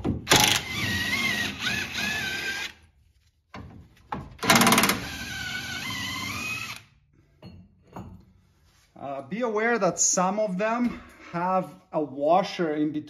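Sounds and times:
impact wrench hammering and whining: 0:00.0 - 0:02.8, 0:03.6 - 0:08.1.

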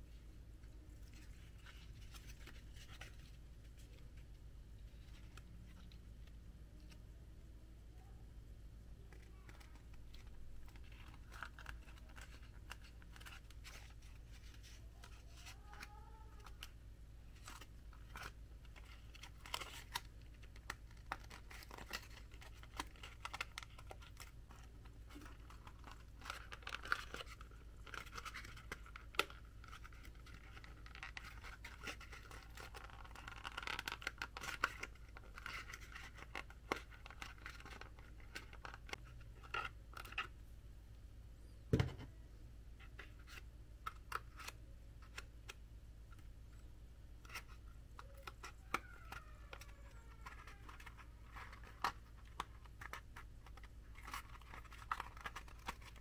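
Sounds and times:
low steady hum: 0:00.0 - 0:56.0
cardboard clicks and taps: 0:41.7 - 0:42.1.

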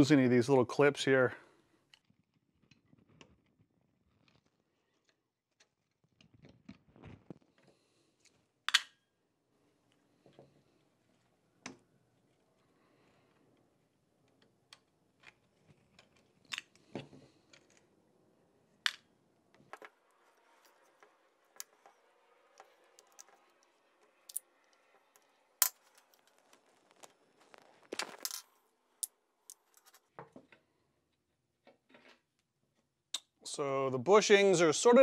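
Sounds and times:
small metal parts dropped in tray: 0:27.9 - 0:28.5.

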